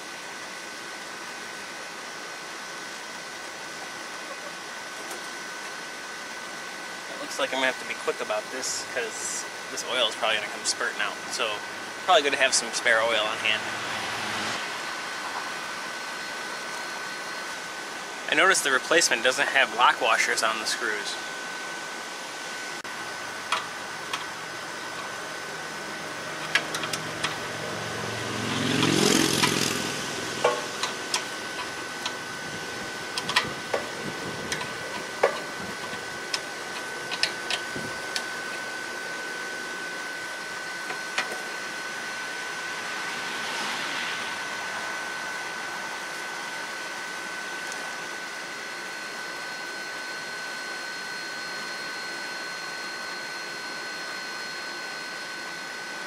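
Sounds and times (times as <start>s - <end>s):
steady high tone: 7.1s - 21.4s, 22.9s - 46.8s
rising rush of noise: 13.3s - 15.8s, 27.0s - 34.8s, 42.1s - 46.0s.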